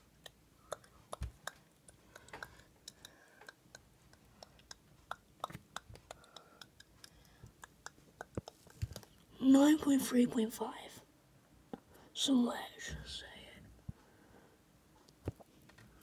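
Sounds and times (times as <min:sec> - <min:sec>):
fingertips tapping glass screen: 0:00.2 - 0:09.2.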